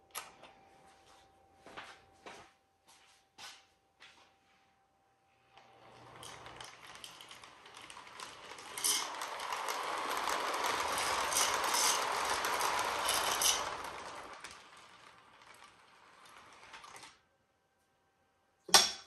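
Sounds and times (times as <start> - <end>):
toy train motor whirring: 5.8 - 17.2
wheels rattling on track: 5.9 - 17.2.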